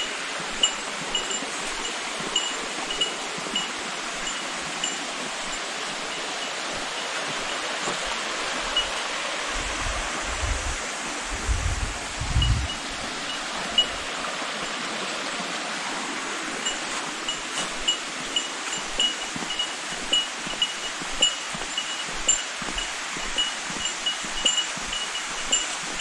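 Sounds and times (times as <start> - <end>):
mountain stream rushing: 0.0 - 26.0
wind buffeting microphone: 9.5 - 14.2.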